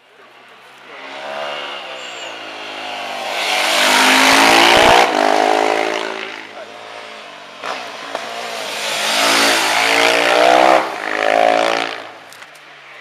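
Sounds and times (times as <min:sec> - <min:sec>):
motorcycle passing at speed: 0:00.9 - 0:06.6, 0:07.5 - 0:12.2.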